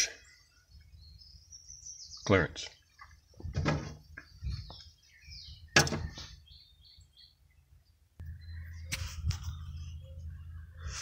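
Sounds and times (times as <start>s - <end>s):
birds chirping: 0.0s - 11.0s
low steady hum: 7.4s - 11.0s.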